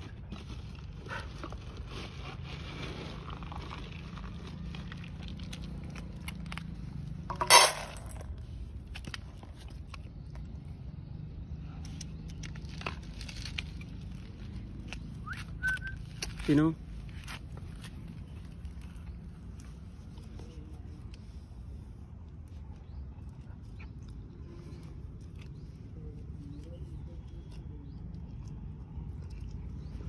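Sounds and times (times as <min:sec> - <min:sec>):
dog crunching dry kibble: 0:00.0 - 0:10.8, 0:11.8 - 0:30.0
bowl clattering: 0:07.3 - 0:08.3.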